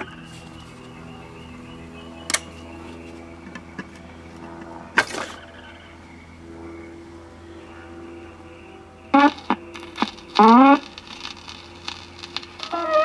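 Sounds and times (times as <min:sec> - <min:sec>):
steady low hum: 0:00.0 - 0:13.0
light record clicks: 0:02.3 - 0:02.5, 0:09.2 - 0:13.0
old record music: 0:09.2 - 0:13.0.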